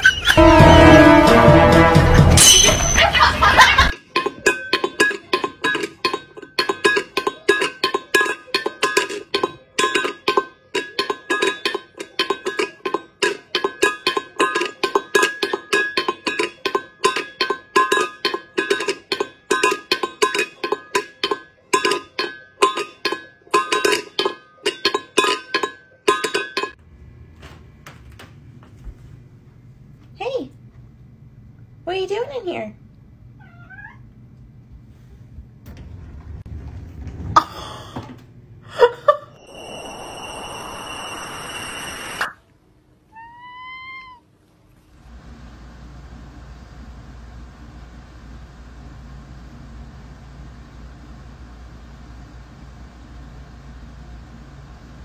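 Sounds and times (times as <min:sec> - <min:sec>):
metal bowl clinking on floor: 0:02.3 - 0:03.3, 0:04.0 - 0:26.8.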